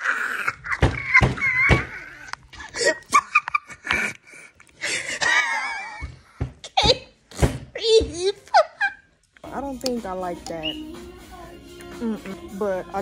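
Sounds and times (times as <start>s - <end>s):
person laughing or exclaiming: 0.0s - 3.6s.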